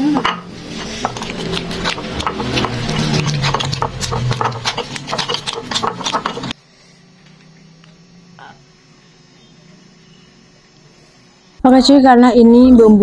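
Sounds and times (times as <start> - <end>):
stone pestle grinding in mortar: 0.2 - 6.6.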